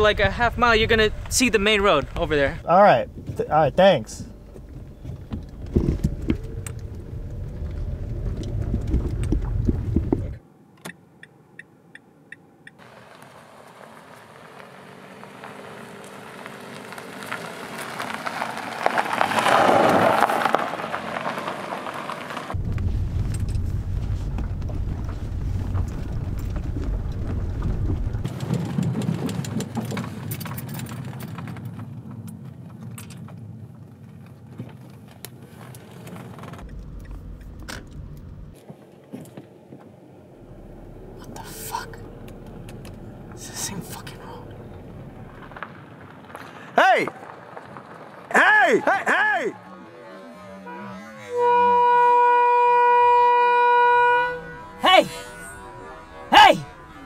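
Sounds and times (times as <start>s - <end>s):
car cabin engine rumble: 0.0s - 10.4s, 22.5s - 34.5s, 36.2s - 45.6s
car passing by: 12.8s - 22.6s.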